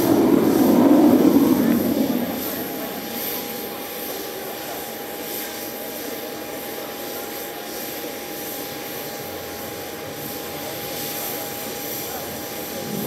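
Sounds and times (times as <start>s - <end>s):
distant jet roar: 0.0s - 3.8s
steady jet whine: 0.0s - 3.9s.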